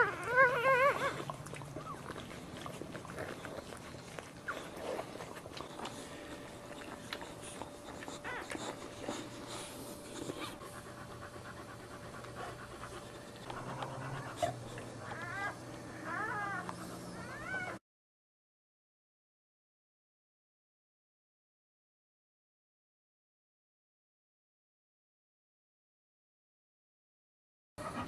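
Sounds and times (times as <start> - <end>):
puppies squeaking: 0.0 - 10.6, 12.8 - 17.8
dog panting hard: 0.0 - 17.7, 27.8 - 28.0.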